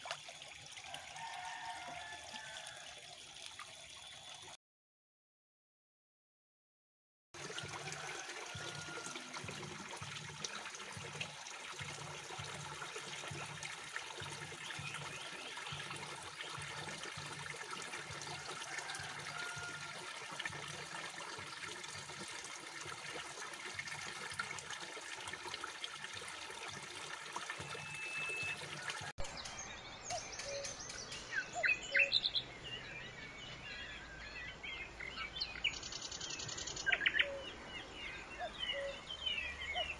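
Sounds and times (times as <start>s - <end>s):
water splashing into pond: 0.0s - 4.6s, 7.4s - 37.8s
bird chirps: 29.2s - 39.9s.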